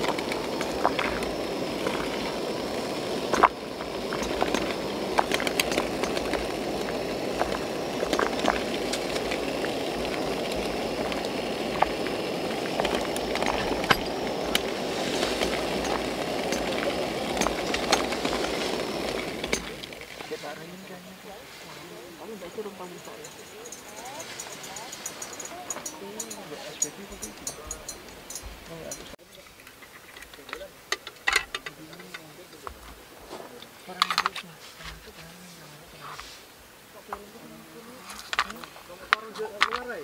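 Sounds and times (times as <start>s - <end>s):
water boiling in a pot: 0.0s - 21.4s.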